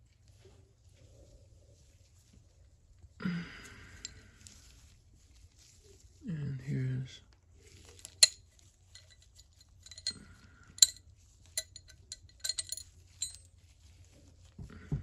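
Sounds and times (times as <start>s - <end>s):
metallic clicks of steel parts: 8.1s - 10.2s, 10.8s - 11.0s, 11.6s - 13.5s.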